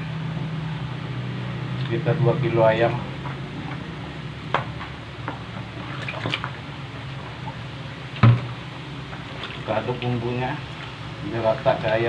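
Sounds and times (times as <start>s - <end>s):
steady low hum: 0.0s - 12.0s
wet squishing and dripping: 4.6s - 12.0s.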